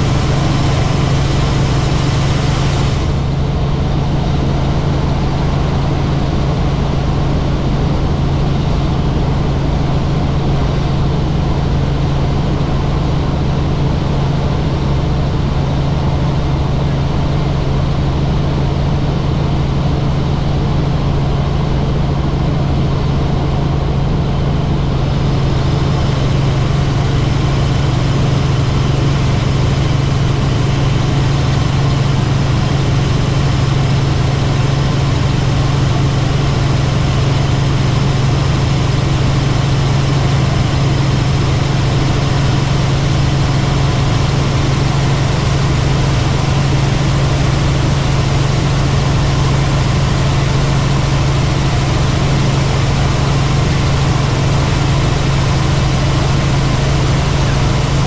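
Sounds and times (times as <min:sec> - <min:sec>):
helicopter engine and rotor drone: 0:00.0 - 0:58.0.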